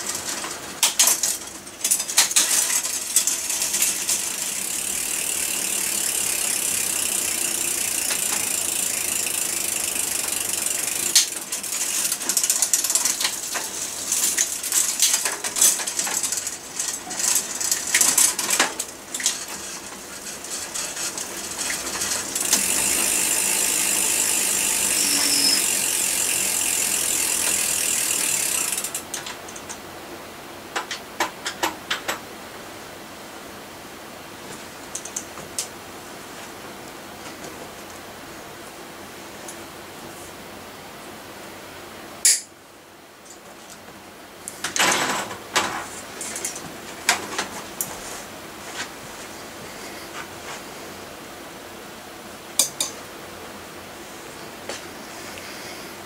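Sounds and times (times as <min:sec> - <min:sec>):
bicycle freewheel ticking: 0:01.8 - 0:29.2.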